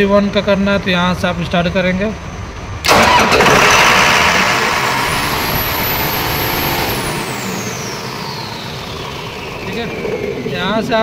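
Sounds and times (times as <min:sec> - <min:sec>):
diesel engine starting and running: 0:00.0 - 0:11.0
high whine: 0:04.1 - 0:11.0.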